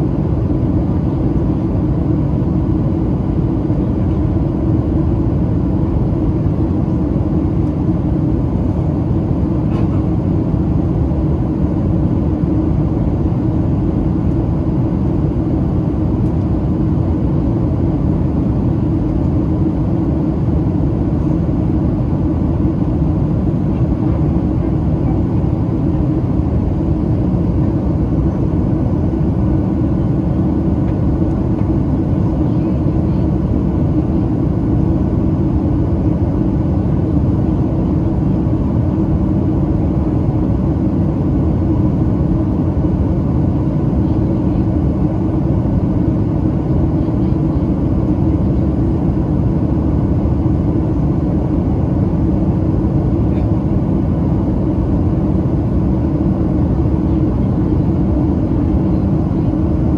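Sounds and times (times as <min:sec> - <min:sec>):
airplane cabin rumble: 0:00.0 - 0:59.9.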